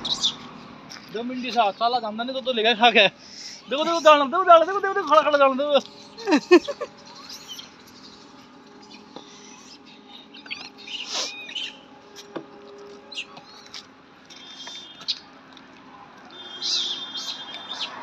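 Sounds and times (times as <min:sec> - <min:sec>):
high animal chirps and squeaks: 0:00.0 - 0:00.6, 0:05.9 - 0:11.9, 0:13.1 - 0:15.3, 0:16.4 - 0:18.0
falling squeal: 0:09.3 - 0:11.8.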